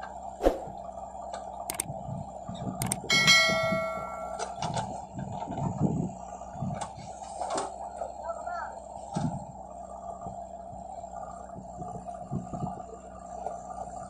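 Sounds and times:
heavy engines running: 0:00.0 - 0:14.0
loud ringing metallic clang: 0:03.1 - 0:04.6.

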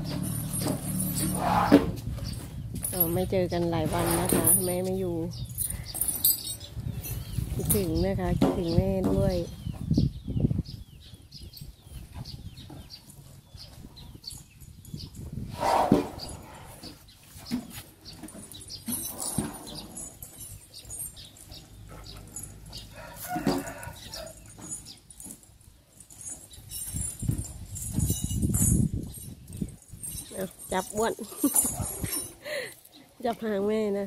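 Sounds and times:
elephants rustling and flapping: 0:00.0 - 0:03.2, 0:14.5 - 0:33.0.

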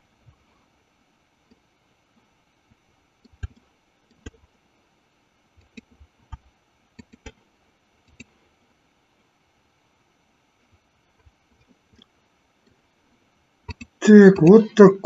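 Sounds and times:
computer mouse clicking: 0:03.2 - 0:04.4, 0:05.6 - 0:07.4, 0:08.0 - 0:08.3.

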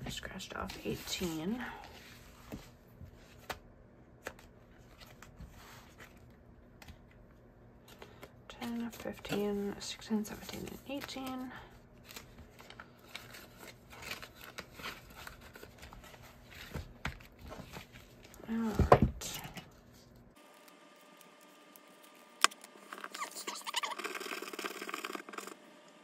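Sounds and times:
paper money and plastic rustling: 0:07.8 - 0:19.6.

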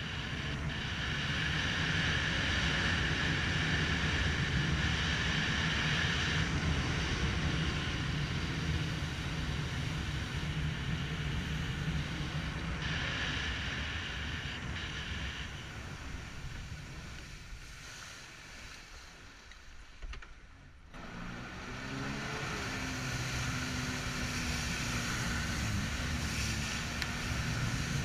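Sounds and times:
jet ski engine droning: 0:00.0 - 0:20.0, 0:20.6 - 0:28.0
water rushing under hull: 0:21.6 - 0:28.0.

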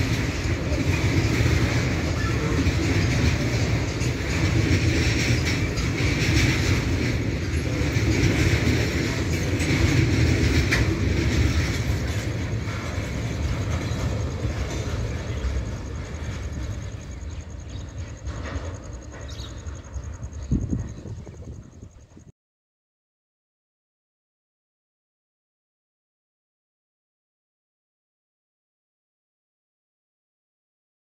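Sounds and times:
freight train rolling past: 0:00.0 - 0:22.3.

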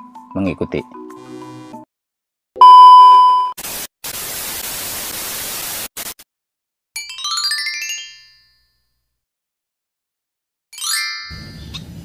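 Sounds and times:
test-tone beep: 0:02.6 - 0:03.6
tv static hiss: 0:03.6 - 0:06.2.

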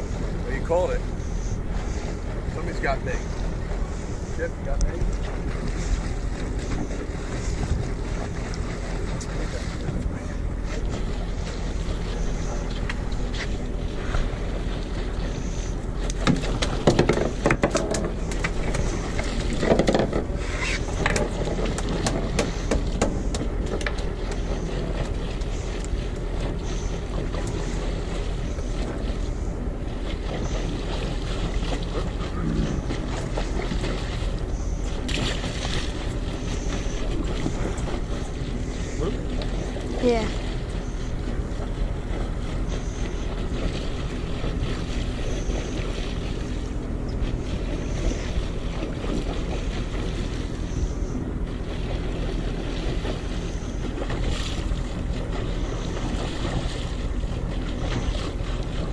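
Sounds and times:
boat low hum: 0:00.0 - 0:58.9
clicks and knocks from rod handling: 0:16.0 - 0:20.3.

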